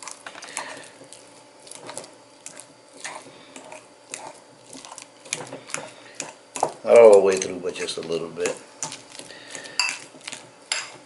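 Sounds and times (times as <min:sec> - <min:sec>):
fork scraping glass bowl: 0:03.0 - 0:11.0.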